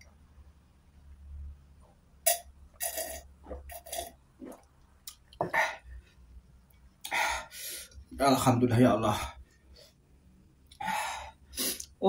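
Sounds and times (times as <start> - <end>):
man drinking from a glass: 2.2 - 4.7.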